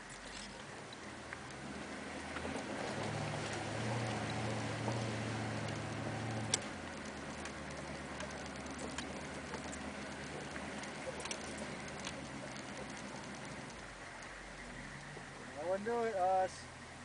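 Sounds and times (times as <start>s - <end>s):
engine ticks and knocks: 0.0s - 16.2s
diesel engine running: 0.0s - 17.0s.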